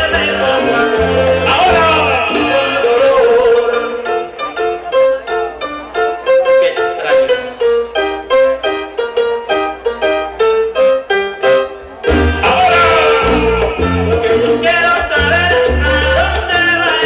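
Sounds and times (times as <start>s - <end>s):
heavy bass: 0.0s - 4.2s, 12.0s - 17.0s
keyboard melody: 0.0s - 17.0s
salsa music: 0.0s - 17.0s.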